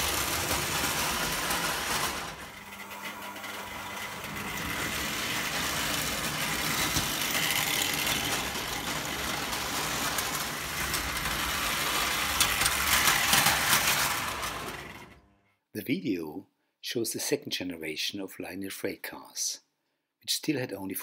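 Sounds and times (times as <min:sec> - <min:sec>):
toy train rumbling on metal track: 0:00.0 - 0:15.3.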